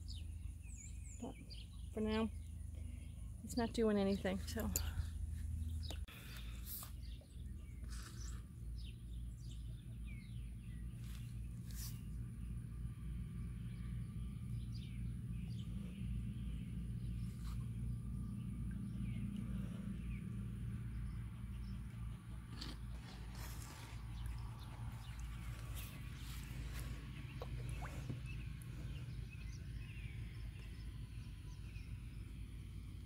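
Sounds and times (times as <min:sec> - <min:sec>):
small birds chirping: 0:00.0 - 0:12.6, 0:13.7 - 0:33.0.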